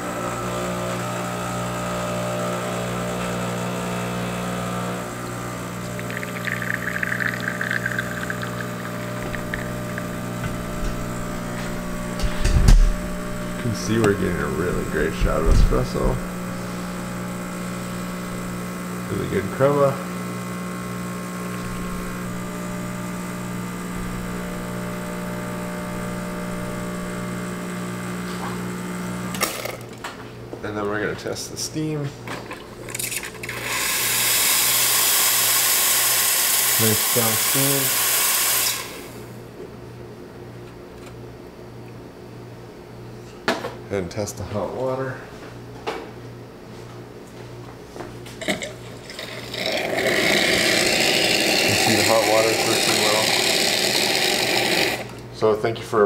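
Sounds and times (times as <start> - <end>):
espresso machine pump humming: 0.0 - 29.9, 32.4 - 39.5, 48.3 - 55.3.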